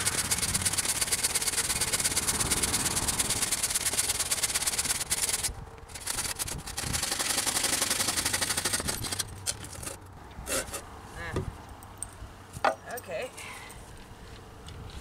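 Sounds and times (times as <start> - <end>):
handsaw cutting wood: 0.0 - 9.2, 9.8 - 10.8.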